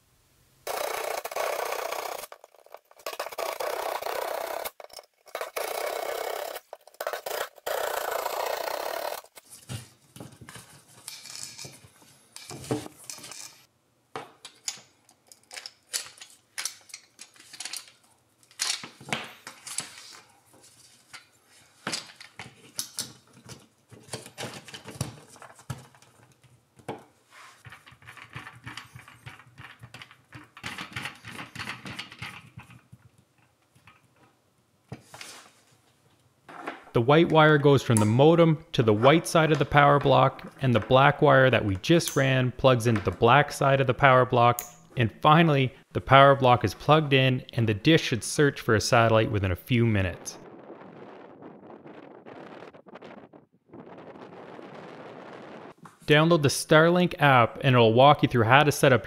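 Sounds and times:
small hard parts clicking: 0.7s - 9.4s.

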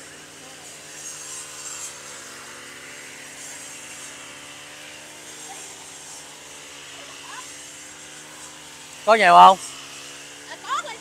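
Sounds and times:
brush cutters running: 0.0s - 11.0s.

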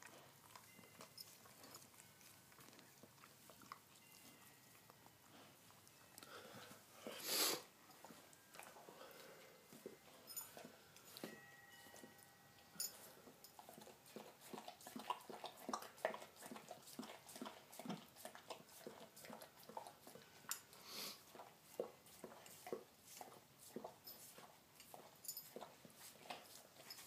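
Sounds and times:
dog licking puppy wet smacks: 13.0s - 27.0s.

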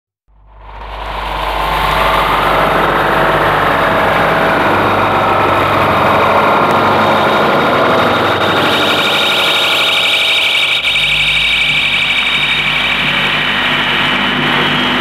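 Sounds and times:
low humming tones: 0.4s - 15.0s
bright high tone: 8.5s - 14.6s.

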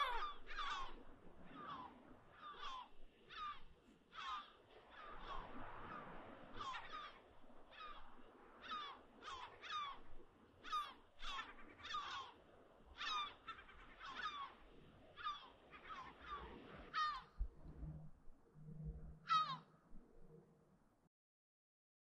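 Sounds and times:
birds calling: 0.0s - 12.4s, 13.0s - 14.6s, 15.2s - 17.4s, 19.2s - 19.7s.

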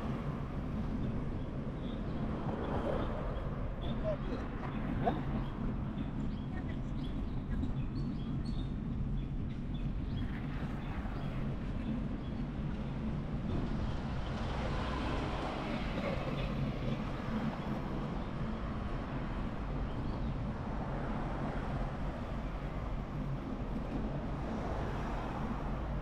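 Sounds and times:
vehicle road noise: 10.4s - 26.0s.

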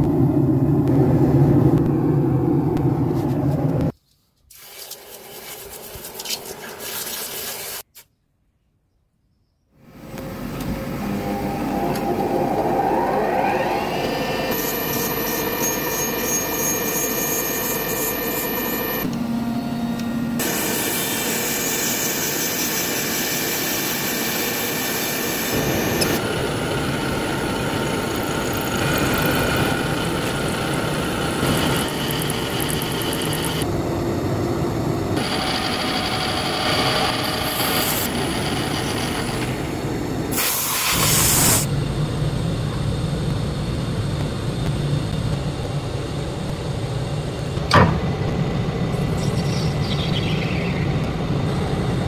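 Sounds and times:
machine motor whining: 9.9s - 33.7s
end mill cutting steel: 10.1s - 19.2s, 20.4s - 33.6s, 35.2s - 41.7s
grinding wheel grinding steel: 10.3s - 19.1s, 20.4s - 33.7s, 35.2s - 39.6s.

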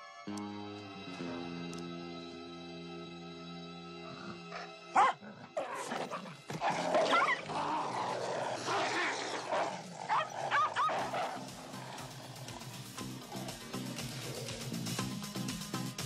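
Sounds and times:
dog growling: 4.0s - 15.0s
dogs barking and yelping: 4.3s - 15.0s.

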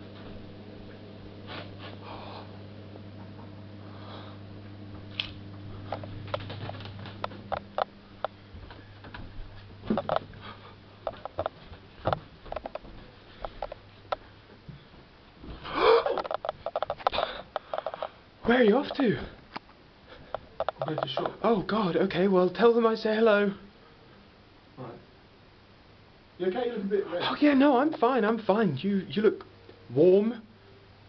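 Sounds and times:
low electrical hum: 0.0s - 31.0s
footsteps on indoor staircase: 8.5s - 10.4s, 11.0s - 15.7s.

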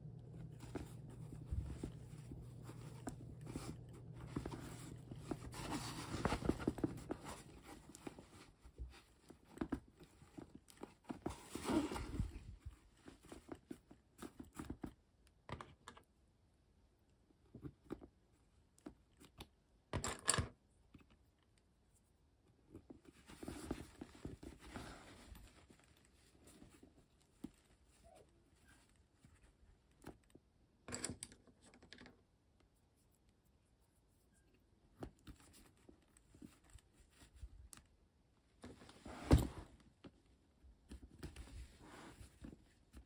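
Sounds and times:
vinyl crinkling and rustling: 0.0s - 15.0s, 22.7s - 30.4s.

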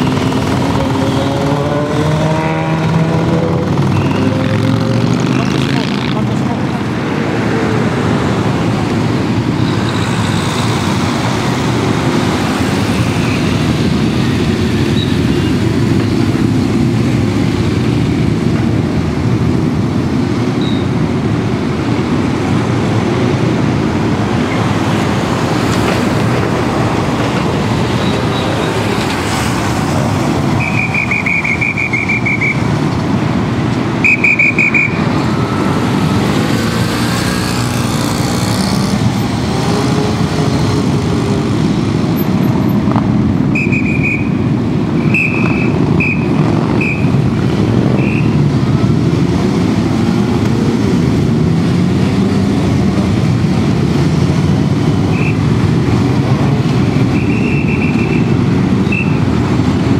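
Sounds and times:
motorcycle and car engines: 0.0s - 59.9s
whistle trilling: 30.6s - 32.7s, 34.0s - 35.4s, 43.5s - 44.4s, 45.0s - 47.1s, 48.0s - 48.4s, 57.1s - 59.2s.

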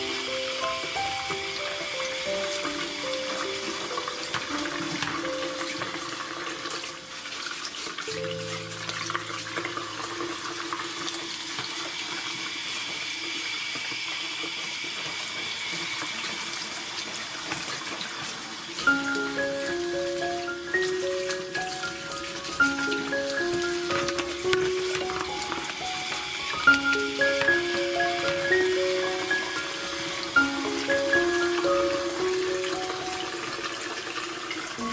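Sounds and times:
soft background music: 0.0s - 11.4s, 18.8s - 34.9s
tap water running into sink: 0.0s - 34.9s.

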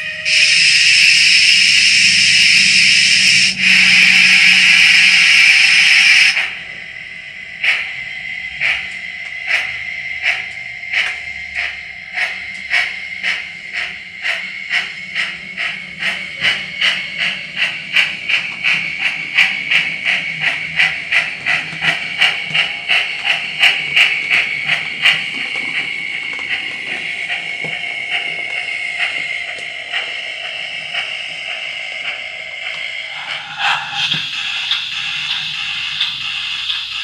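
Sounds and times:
steam exhaust chuffs from small speaker: 0.0s - 6.5s
steady high tone: 0.0s - 7.4s
steady steam hiss: 0.2s - 6.6s.

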